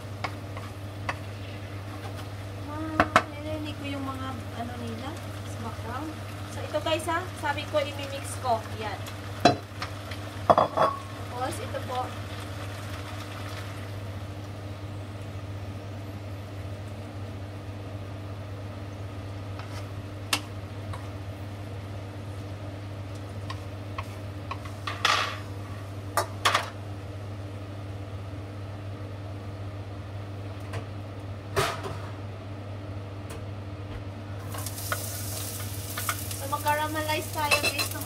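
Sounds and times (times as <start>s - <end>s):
spatula clattering on frying pan: 37.4s - 38.0s.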